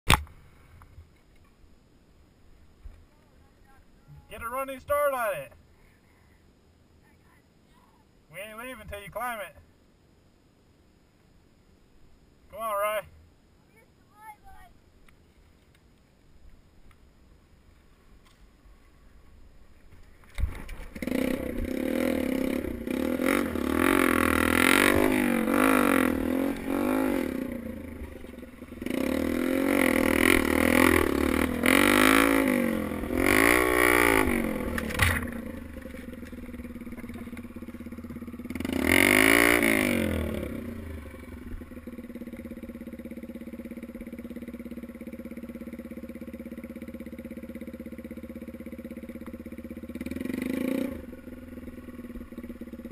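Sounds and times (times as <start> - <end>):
dirt bike engine revving: 20.4 - 52.9.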